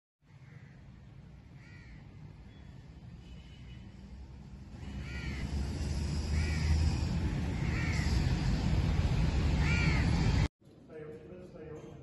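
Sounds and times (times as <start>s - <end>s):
crow cawing: 0.3s - 0.8s, 1.6s - 2.1s, 4.8s - 5.5s, 6.3s - 8.3s, 9.6s - 10.5s.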